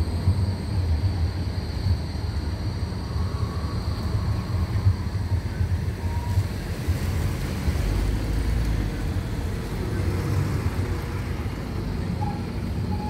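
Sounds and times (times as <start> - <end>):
tram passing: 0.0 - 13.0
cars driving past: 6.4 - 13.0.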